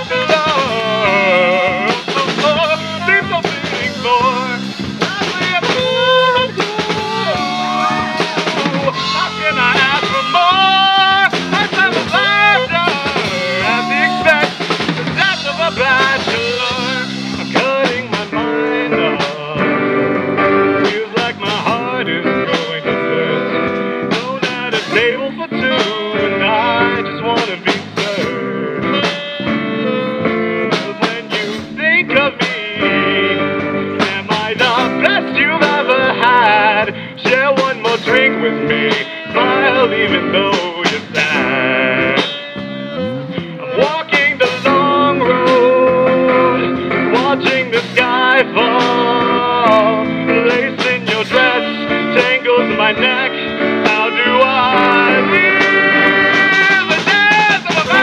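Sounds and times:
live rock band playing: 0.0 - 58.0
drum hits: 1.7 - 22.8, 33.6 - 42.8, 43.4 - 58.0
gliding lead melody: 51.4 - 57.1.

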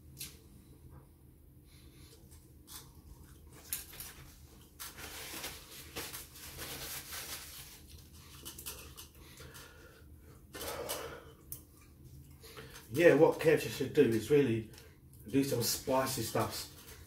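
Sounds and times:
paper napkin rustling: 3.5 - 8.3.

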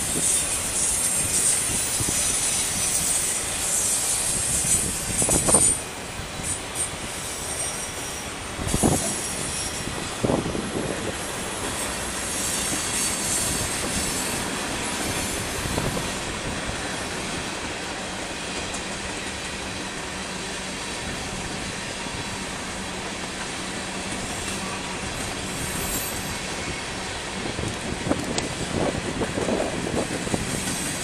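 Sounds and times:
high wheel squeal: 0.0 - 16.2, 24.3 - 27.1
freight train wheels rumbling: 0.0 - 31.0.

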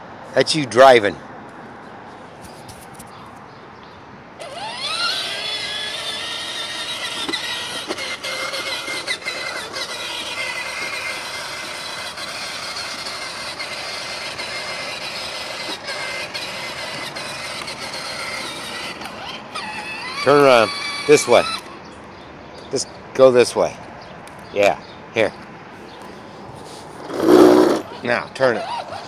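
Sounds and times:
electric ride-on motor whining: 4.4 - 21.1, 27.0 - 27.8.

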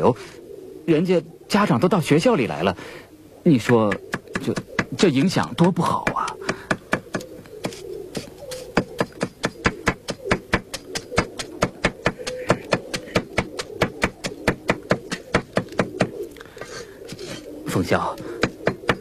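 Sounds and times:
knife chopping on wooden board: 3.7 - 16.2.

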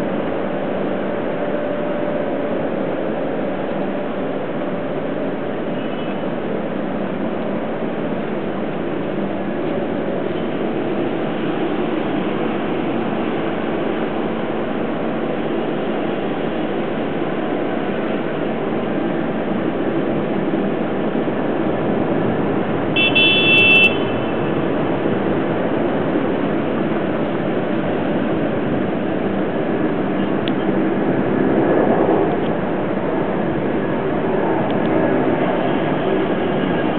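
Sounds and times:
city road traffic hum: 0.0 - 36.9
short high car horn toot: 23.0 - 24.3.

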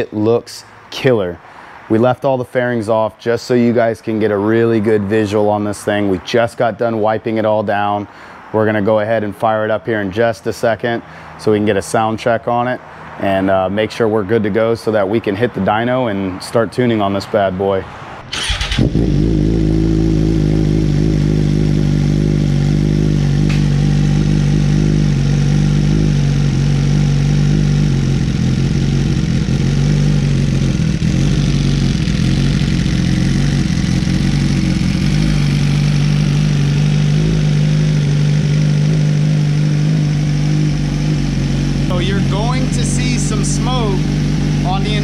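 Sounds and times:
motorcycle engine idling: 18.3 - 45.0.

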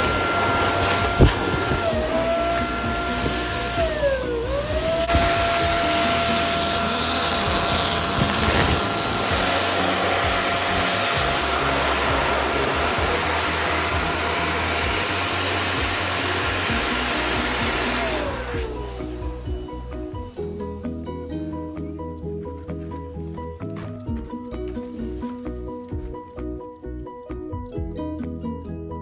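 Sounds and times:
electric air pump whining: 0.0 - 20.5.

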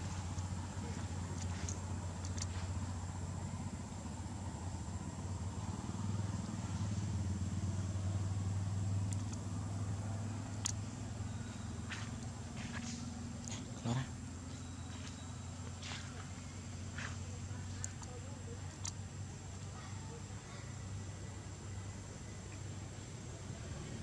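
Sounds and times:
low motor hum: 0.0 - 24.0
faint sharp clicks: 9.1 - 9.4, 10.6 - 10.8, 18.8 - 19.0.

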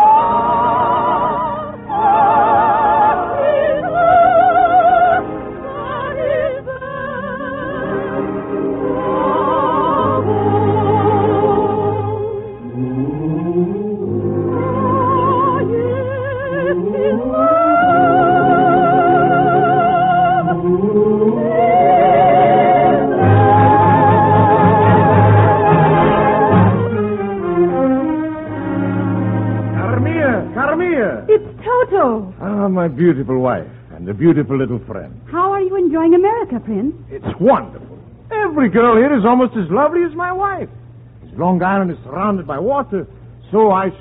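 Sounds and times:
orchestra accompaniment: 0.0 - 31.4
operetta singing: 0.0 - 32.2.

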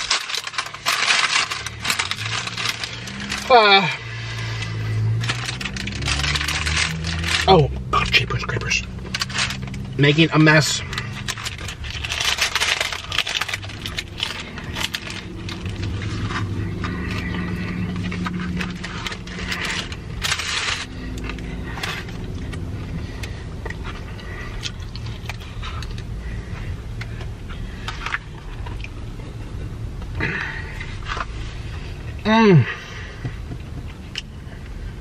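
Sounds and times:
food wrappers crinkling: 0.0 - 29.2
low car cabin hum: 0.0 - 35.0
chewing and mouth sounds: 11.0 - 26.1, 27.0 - 30.2.

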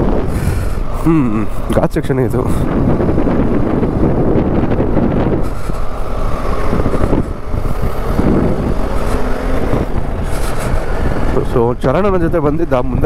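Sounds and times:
wind rushing over microphone: 0.0 - 13.0.

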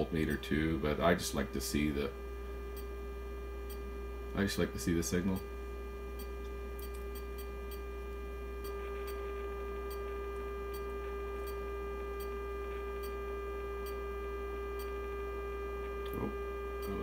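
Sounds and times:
low mains hum: 0.0 - 17.0
sine-wave test tone: 0.0 - 17.0.

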